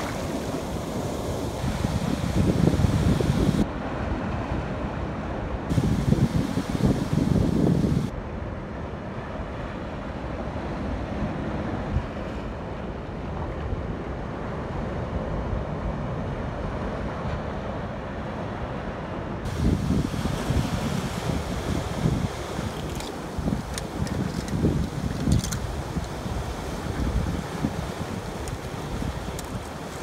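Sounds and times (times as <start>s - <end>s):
wind on microphone: 0.0s - 3.7s, 5.7s - 8.2s, 19.4s - 30.0s
surf washing on rocks: 0.0s - 4.8s, 5.7s - 8.1s, 19.5s - 30.0s.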